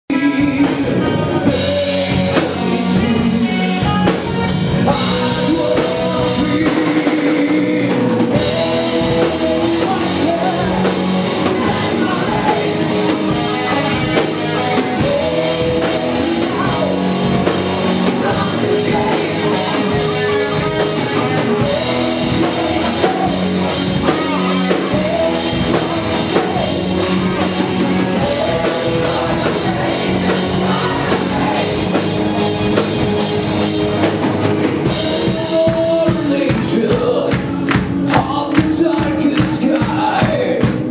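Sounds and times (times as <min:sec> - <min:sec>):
man singing into a microphone: 0:00.1 - 0:32.9, 0:34.8 - 0:40.9
drum kit: 0:00.1 - 0:40.9
electric guitar: 0:00.1 - 0:40.9.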